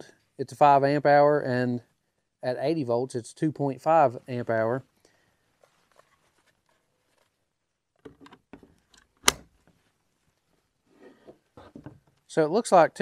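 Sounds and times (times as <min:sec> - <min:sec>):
sharp latching click: 0:09.0 - 0:09.5.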